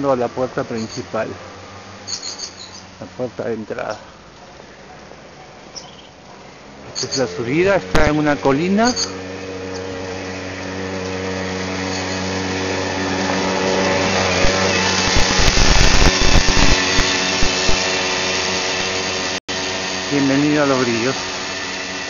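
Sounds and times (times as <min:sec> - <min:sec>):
small motor whining: 0:06.7 - 0:22.0.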